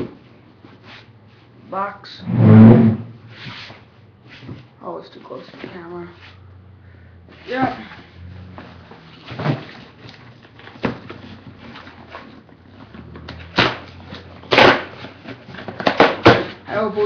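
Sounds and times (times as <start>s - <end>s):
cardboard box scraping and knocking: 7.4s - 16.6s.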